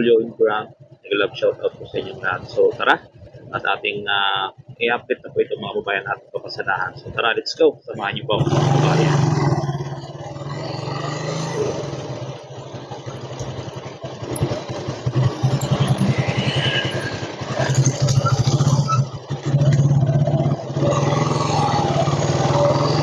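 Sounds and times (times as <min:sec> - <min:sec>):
motorcycle engine running: 0:08.2 - 0:23.0.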